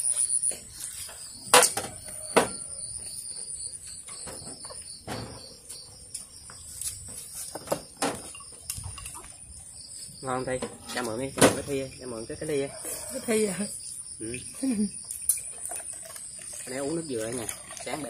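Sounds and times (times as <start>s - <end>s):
insect trilling: 8.3s - 18.0s.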